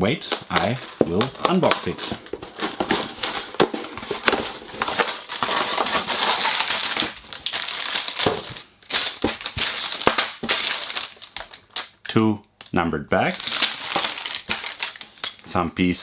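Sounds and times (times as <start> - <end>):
plastic bags crinkling: 0.3 - 12.0, 13.3 - 15.4
cardboard box opened: 0.6 - 8.4.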